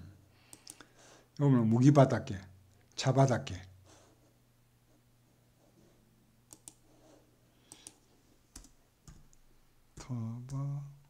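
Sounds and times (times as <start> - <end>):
keyboard and mouse clicks: 0.5 - 0.9, 6.5 - 6.8, 7.6 - 9.4
man murmuring: 10.0 - 11.0.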